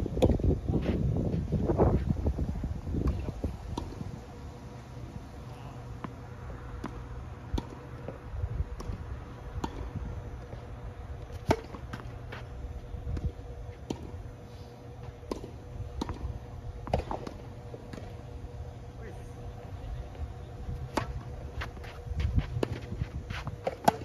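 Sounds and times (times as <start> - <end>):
steady low hum: 0.0 - 24.0
tennis ball bouncing on court: 6.0 - 8.2, 9.6 - 10.7, 11.3 - 12.4, 15.2 - 18.2, 20.9 - 24.0
racket striking tennis ball: 11.3 - 12.2, 20.9 - 24.0.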